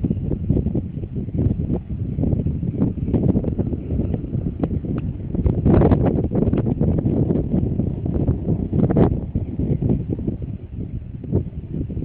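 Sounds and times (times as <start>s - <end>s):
wind buffeting microphone: 0.0s - 12.0s.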